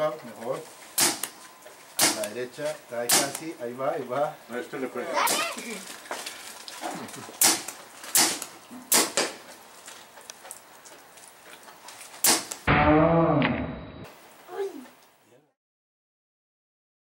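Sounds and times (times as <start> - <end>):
paintball marker pops: 7.4 - 9.4, 12.2 - 12.6
loud pitched sound: 12.7 - 14.1.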